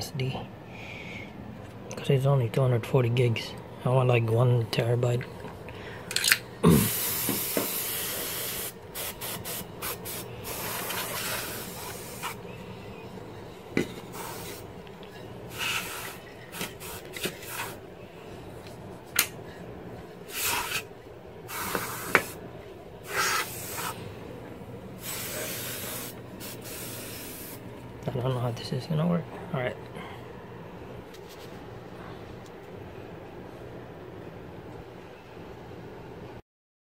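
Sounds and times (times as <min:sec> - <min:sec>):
hissing bursts of air: 0:06.7 - 0:12.5, 0:13.8 - 0:14.8, 0:15.4 - 0:17.8, 0:20.2 - 0:22.4, 0:23.0 - 0:24.1, 0:24.9 - 0:27.7.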